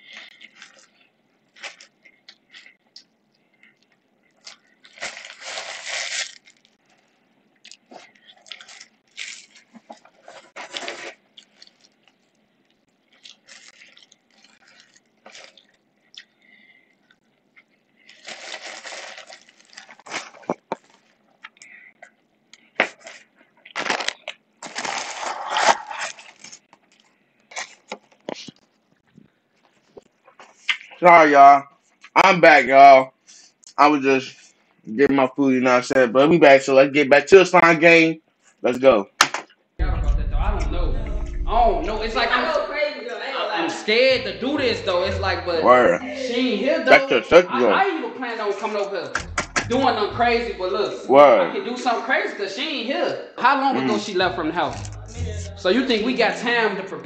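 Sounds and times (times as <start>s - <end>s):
rustling and crinkling: 0.0s - 15.8s, 17.7s - 21.5s, 22.8s - 31.0s.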